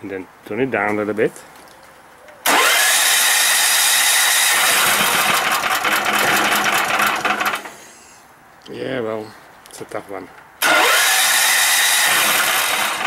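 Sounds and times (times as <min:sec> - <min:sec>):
generator engine cranking: 0:02.4 - 0:07.8, 0:10.6 - 0:13.0.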